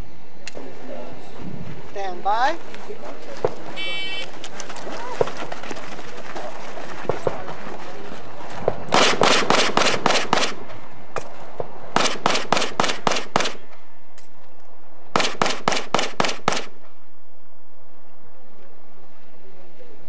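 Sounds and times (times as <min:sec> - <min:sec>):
pistol shots: 0:08.6 - 0:13.8, 0:15.1 - 0:17.0.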